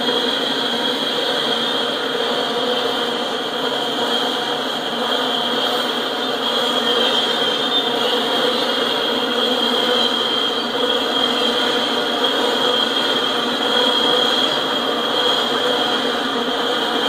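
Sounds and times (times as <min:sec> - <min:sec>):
high-pitched ring: 0:00.0 - 0:17.0
steel wheels rushing on rail: 0:00.0 - 0:17.0.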